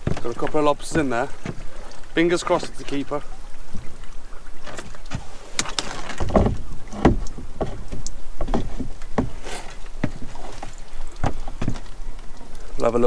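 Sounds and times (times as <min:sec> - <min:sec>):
lobster pot knocking on boat: 0:06.2 - 0:09.4.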